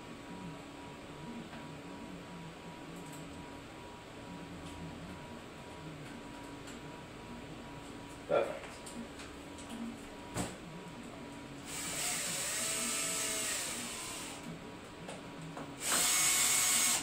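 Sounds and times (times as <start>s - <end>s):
cordless drill running: 11.6s - 14.4s, 15.8s - 17.0s.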